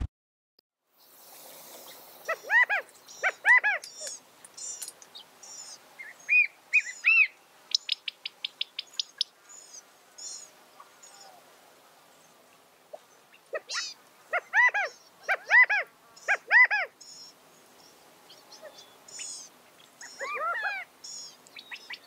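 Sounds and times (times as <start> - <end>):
quail calling: 2.2 - 4.2, 6.0 - 9.3, 12.9 - 17.0, 18.3 - 22.0.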